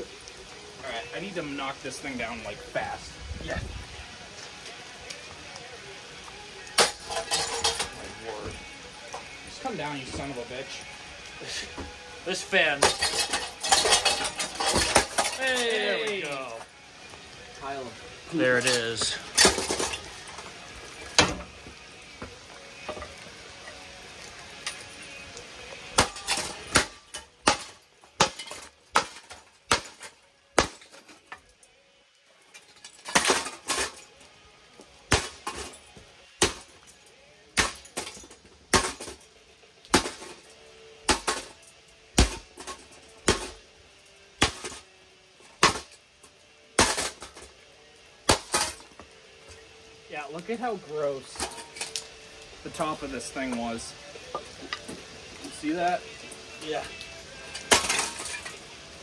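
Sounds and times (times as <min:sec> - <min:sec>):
metal smashed on stone: 0:06.6 - 0:09.2, 0:12.7 - 0:16.7, 0:18.5 - 0:21.6, 0:25.9 - 0:31.7, 0:32.4 - 0:34.3, 0:35.0 - 0:43.7, 0:44.4 - 0:47.6, 0:48.2 - 0:49.6, 0:51.1 - 0:52.1, 0:57.5 - 0:58.7.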